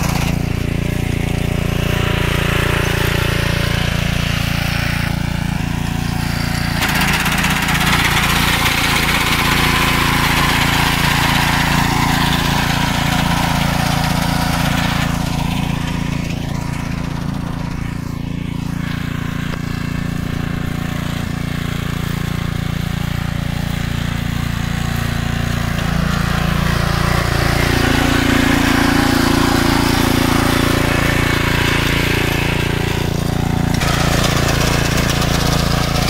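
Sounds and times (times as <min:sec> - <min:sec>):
reaper engine running: 0:00.0 - 0:36.0
reciprocating cutter bar rattling: 0:06.7 - 0:09.3.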